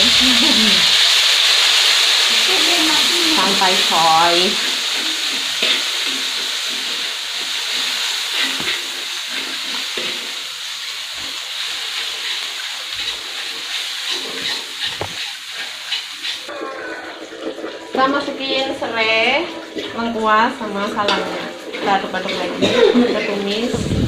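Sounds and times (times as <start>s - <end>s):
spice paste sizzling in oil: 0.0s - 16.5s
spatula scraping and tapping: 7.7s - 9.0s, 13.0s - 16.5s.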